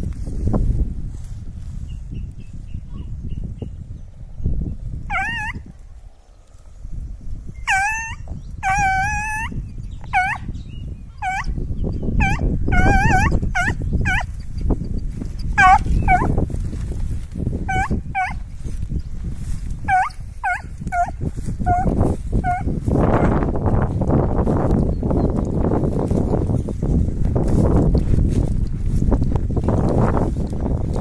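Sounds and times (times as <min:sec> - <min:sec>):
dog yelping: 0:05.1 - 0:05.6, 0:07.6 - 0:10.5, 0:11.2 - 0:11.5, 0:12.2 - 0:14.3, 0:15.6 - 0:16.4, 0:17.7 - 0:18.4, 0:19.9 - 0:22.7.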